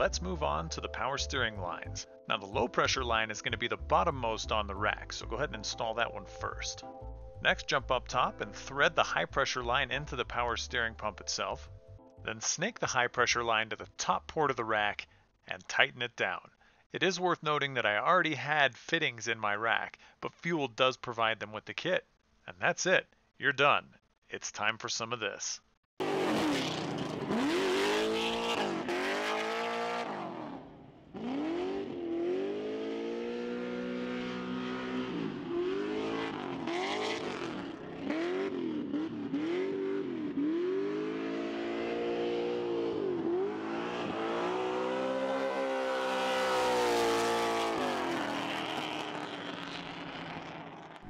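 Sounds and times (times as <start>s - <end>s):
car engine revving: 26.0s - 51.0s.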